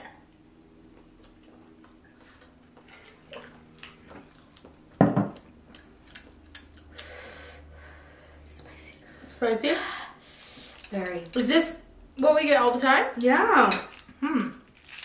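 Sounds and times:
soft chewing: 0.8 - 7.1.

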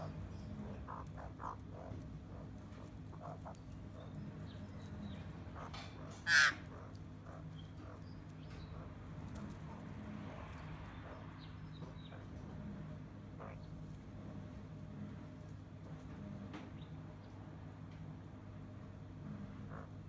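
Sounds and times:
magpie harsh call: 0.0 - 2.0, 5.6 - 6.9
low background hum: 0.0 - 20.0.

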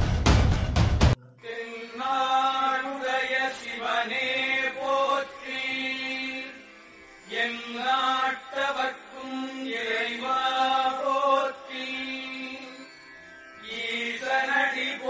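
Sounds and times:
person chanting: 1.1 - 6.6, 7.3 - 12.8.

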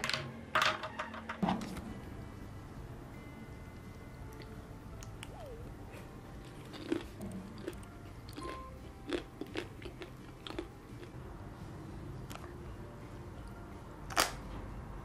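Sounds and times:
crisp crunching and chewing: 6.4 - 11.2.

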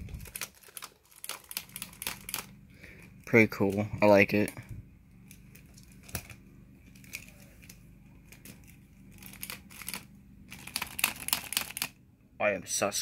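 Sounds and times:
plastic toy clicking and rattling: 0.1 - 2.5, 8.3 - 11.9.

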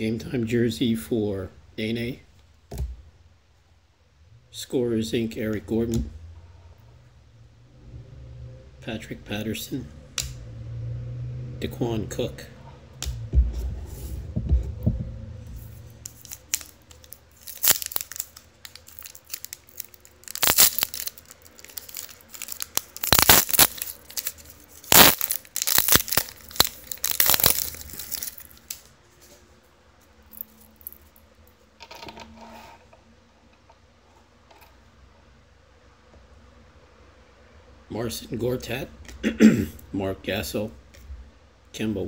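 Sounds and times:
cards rustling: 15.5 - 29.4
wrapper tearing and crinkling: 15.9 - 28.9.

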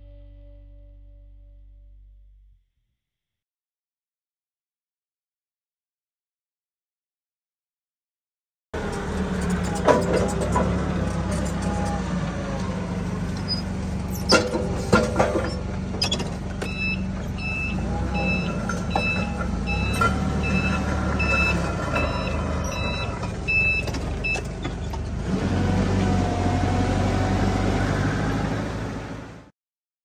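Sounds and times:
forklift engine running: 8.8 - 29.5
reversing alarm beeping: 16.6 - 24.8.

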